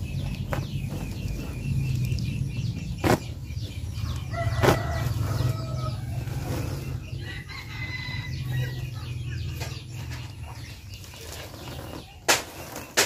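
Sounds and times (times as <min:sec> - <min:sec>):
sharp cracks: 0:12.2 - 0:13.0.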